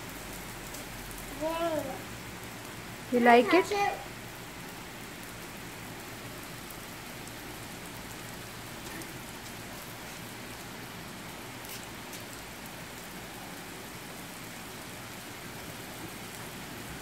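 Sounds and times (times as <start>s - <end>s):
rain on concrete: 0.0s - 17.0s.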